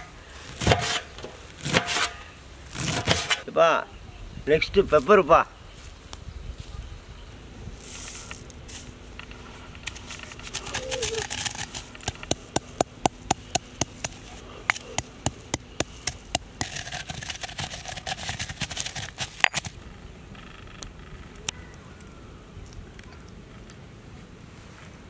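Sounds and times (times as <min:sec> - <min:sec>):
rustling: 0:07.7 - 0:19.8
stone pestle pounding peppercorns: 0:10.5 - 0:19.8.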